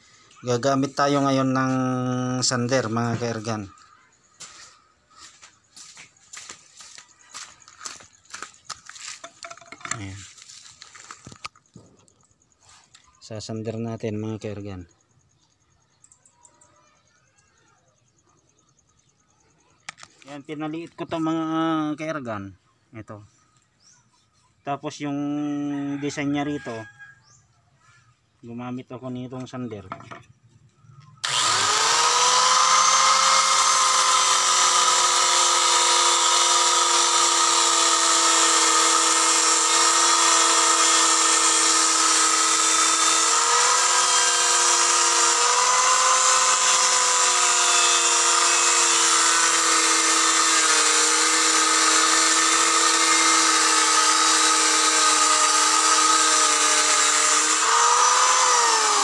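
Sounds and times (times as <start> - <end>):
angle grinder sanding wood: 31.2 - 59.0.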